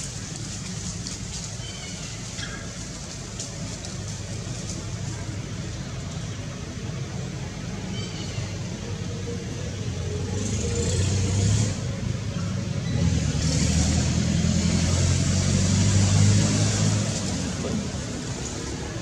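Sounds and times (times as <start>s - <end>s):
vehicle engine passing by: 9.7s - 19.0s.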